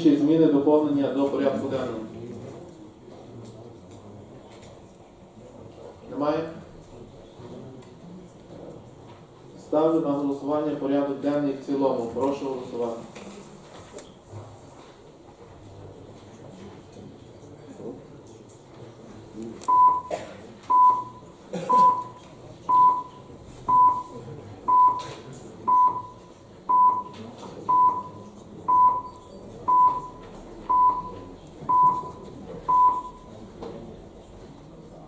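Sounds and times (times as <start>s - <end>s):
faint room murmur: 0.0s - 35.0s
short timer beeps: 19.7s - 20.1s, 20.7s - 24.1s.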